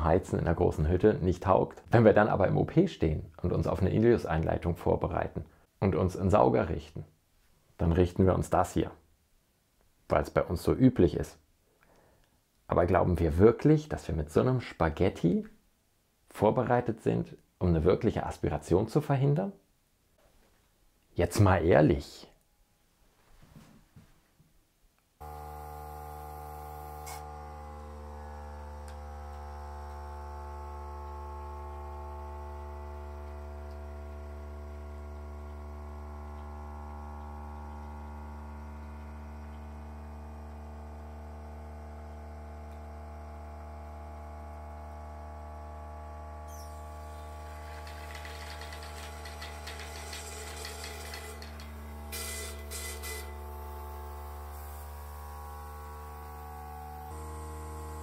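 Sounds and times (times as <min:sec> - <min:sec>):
suction pump motor humming: 0:25.2 - 0:58.0.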